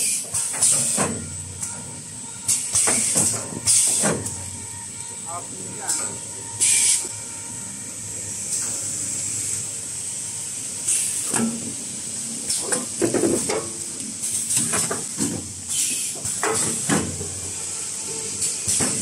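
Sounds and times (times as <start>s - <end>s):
pneumatic cylinder air hisses: 0.0s - 1.3s, 2.5s - 4.4s, 5.9s - 7.1s, 10.8s - 11.6s, 14.2s - 19.0s.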